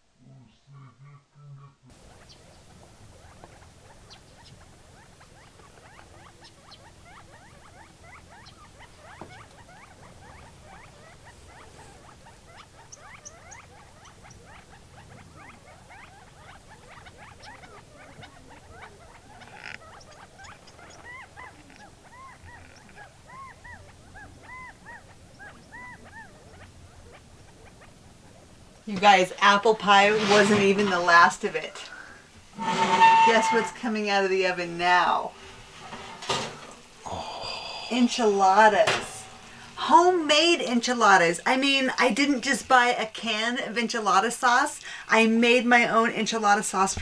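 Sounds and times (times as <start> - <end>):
rising-and-falling bird calls: 0.7 - 28.4
quail chips and chatter: 0.7 - 29.6.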